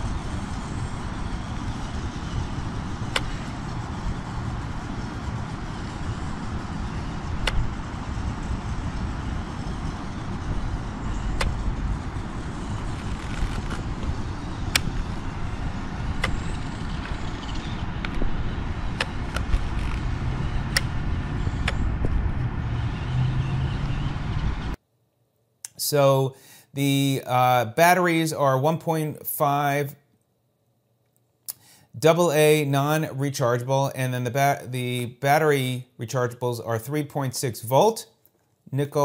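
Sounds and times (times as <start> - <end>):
toy truck electric motors whirring: 0.0 - 24.4
sharp clicks: 3.0 - 3.8, 7.4 - 7.8, 11.2 - 11.6, 12.4 - 21.9.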